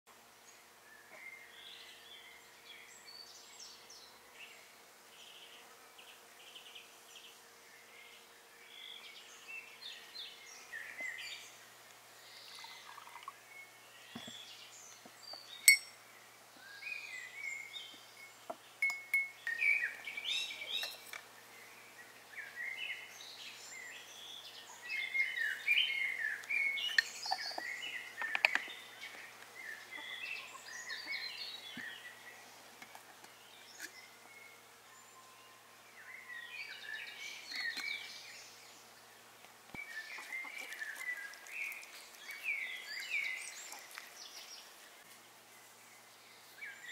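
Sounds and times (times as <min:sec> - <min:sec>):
songbirds chirping and singing: 0:00.2 - 0:46.9
spoon clinking against glass: 0:15.7 - 0:16.0, 0:18.8 - 0:19.4.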